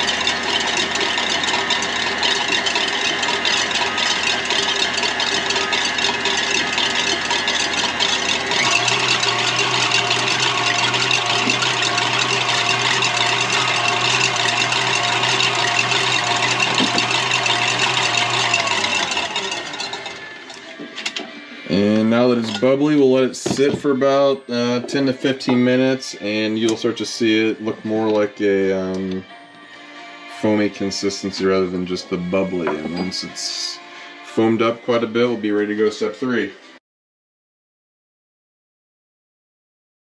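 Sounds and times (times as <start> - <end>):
stand mixer whisking: 0.0 - 20.9.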